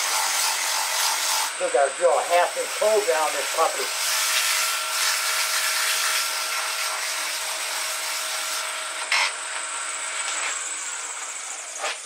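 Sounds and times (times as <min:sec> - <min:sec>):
sanding hiss on spinning wood: 0:00.0 - 0:12.0
wood lathe running: 0:00.0 - 0:12.0
sharp scrape: 0:11.7 - 0:12.0.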